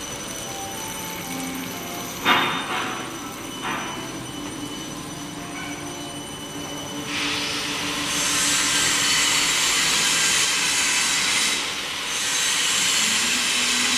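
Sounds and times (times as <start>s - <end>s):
machine humming: 0.0s - 13.9s.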